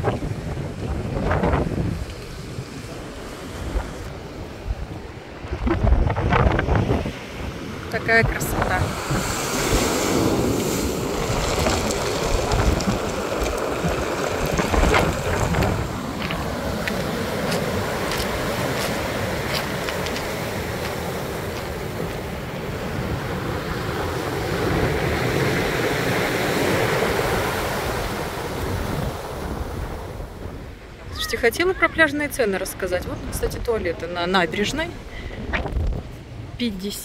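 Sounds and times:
wind buffeting microphone: 0.0s - 37.0s
surf breaking on pebble beach: 8.7s - 30.3s.

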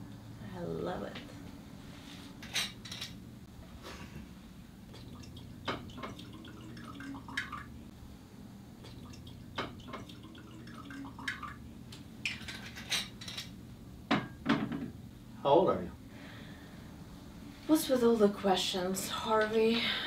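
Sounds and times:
liquor pouring into glass: 4.9s - 7.7s, 8.9s - 11.6s.

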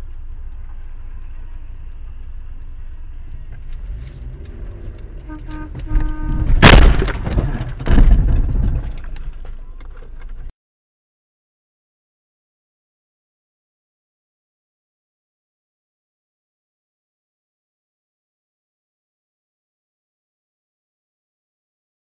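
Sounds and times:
car driving rumble: 0.0s - 10.5s
car horn: 3.8s - 7.0s
loud collision bang: 5.4s - 9.0s.

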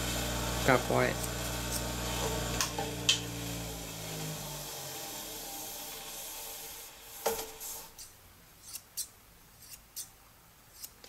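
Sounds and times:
machine motor spinning down: 0.0s - 7.9s.

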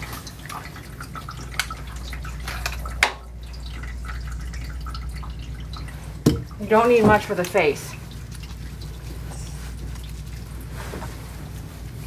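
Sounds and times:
water dripping into a tub: 0.0s - 10.7s.

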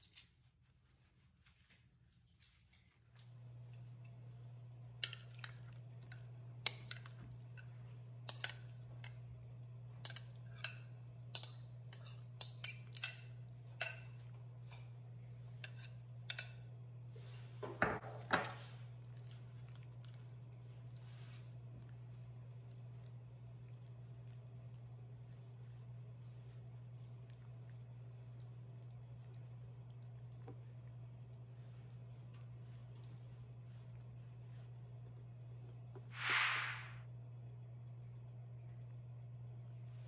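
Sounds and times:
metal spoon clinking on glass bowl: 10.0s - 14.1s.

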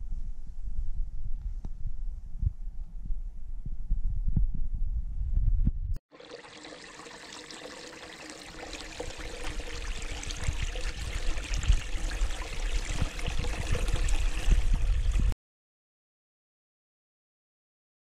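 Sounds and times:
water pouring into stony pool: 6.1s - 15.4s.

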